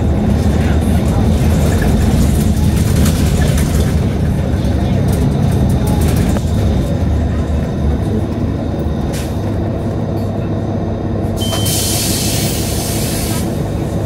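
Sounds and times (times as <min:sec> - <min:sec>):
bus engine and road rumble: 0:00.0 - 0:14.0
short high beep: 0:11.4 - 0:12.0
air hiss: 0:11.7 - 0:13.6.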